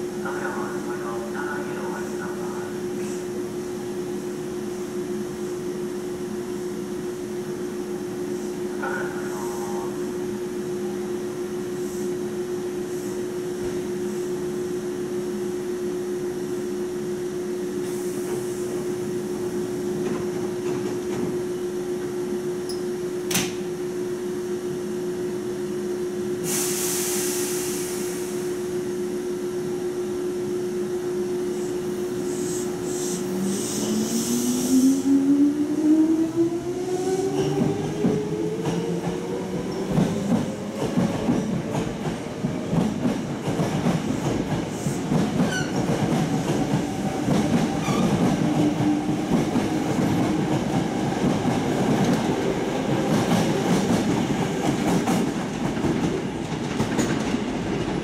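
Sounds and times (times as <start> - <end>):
burst of hiss: 26.4 - 28.4.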